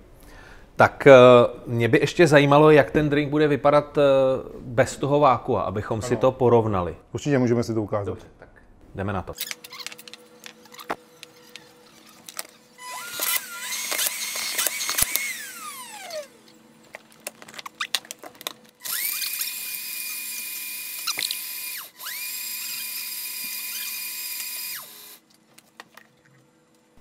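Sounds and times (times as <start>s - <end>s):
blender motor whining: 10.4s - 16.6s, 18.8s - 25.2s.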